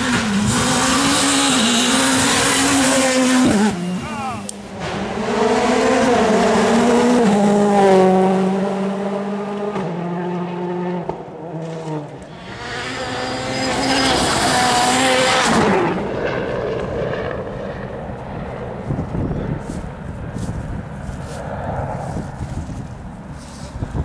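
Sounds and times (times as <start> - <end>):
rally car engine at full throttle: 0.0 - 18.2
rally car passing: 0.0 - 24.0.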